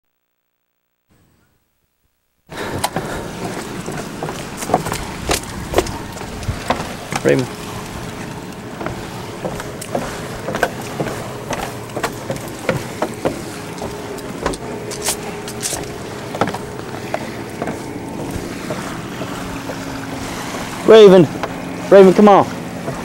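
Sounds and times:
footsteps on wooden deck: 0:02.5 - 0:21.9, 0:22.6 - 0:23.0
distant speedboat engine drone: 0:02.5 - 0:23.0.

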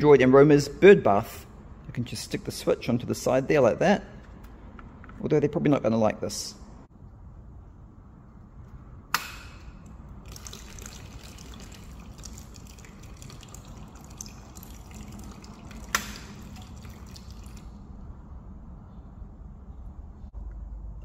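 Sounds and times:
fountain water trickling and splashing: 0:10.2 - 0:17.8.

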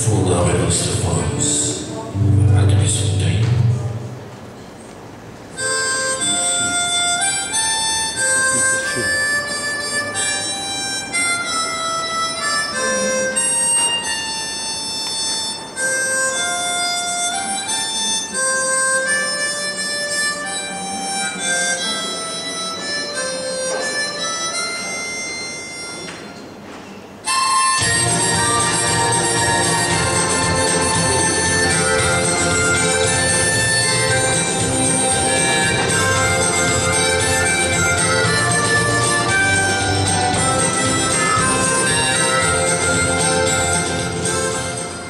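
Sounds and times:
free-reed instrument dance tune: 0:05.5 - 0:26.2, 0:27.2 - 0:45.0.

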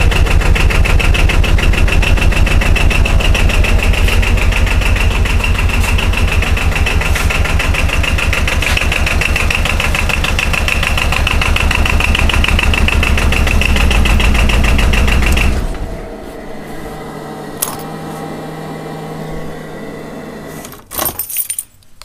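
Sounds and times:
diesel engine clattering: 0:00.0 - 0:16.2
knocking handling noise: 0:17.6 - 0:18.0.

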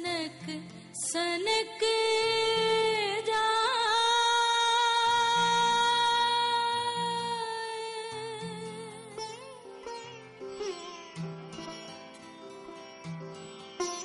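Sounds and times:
woman singing a long note: 0:00.0 - 0:09.1.

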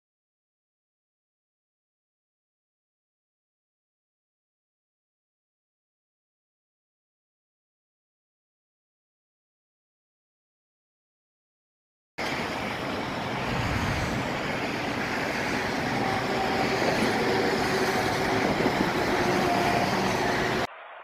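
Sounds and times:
road traffic rumble: 0:12.2 - 0:20.7.

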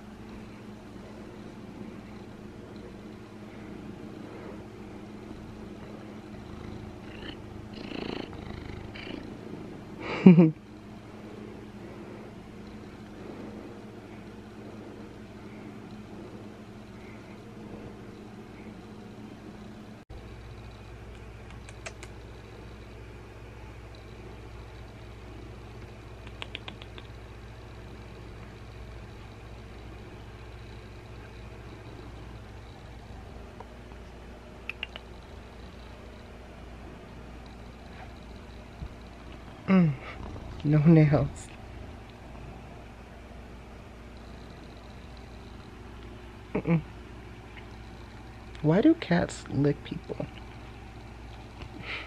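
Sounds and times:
cat purring: 0:00.3 - 0:19.7, 0:23.8 - 0:48.5
small clicks: 0:21.1 - 0:22.2, 0:25.8 - 0:27.2.

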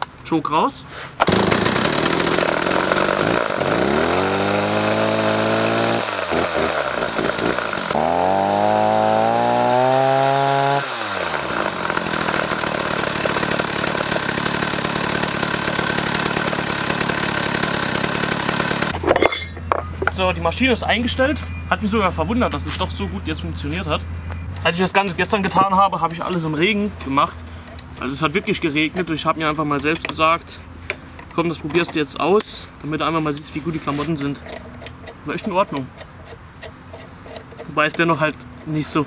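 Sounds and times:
chainsaw revving and idling: 0:01.2 - 0:19.0.

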